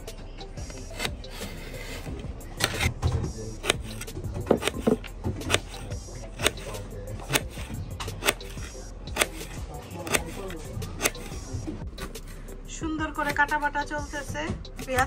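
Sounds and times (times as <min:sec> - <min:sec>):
knife chopping on cutting board: 0:03.6 - 0:05.8, 0:06.4 - 0:11.4.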